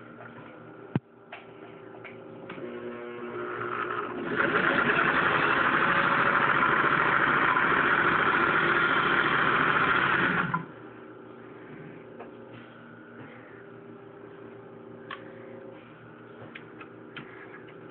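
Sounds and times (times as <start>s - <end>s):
sewing machine rattling: 3.6s - 10.6s.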